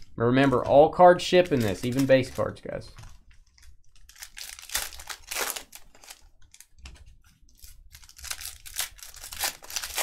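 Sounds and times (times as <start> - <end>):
card wrappers tearing and crinkling: 1.4 - 2.8, 3.5 - 6.8, 7.6 - 10.0
cards being handled: 1.4 - 10.0.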